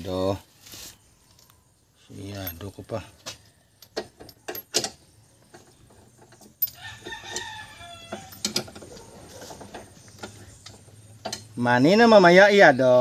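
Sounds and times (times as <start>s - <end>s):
rooster crowing: 6.7s - 8.6s.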